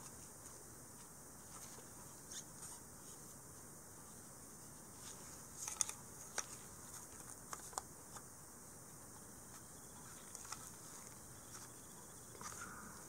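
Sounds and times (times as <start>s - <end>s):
plastic parts clicking together: 5.6s - 7.9s.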